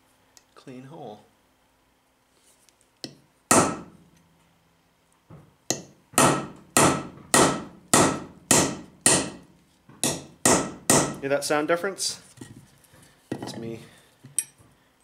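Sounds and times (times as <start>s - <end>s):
hammer striking steel punch: 3.0s - 4.0s, 5.7s - 11.2s.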